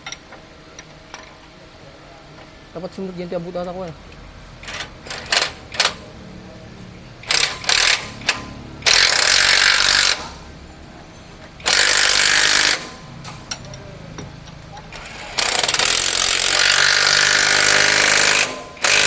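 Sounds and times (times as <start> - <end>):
impact wrench running: 4.6 - 6.1, 7.2 - 10.6, 11.6 - 13.8, 14.4 - 19.0.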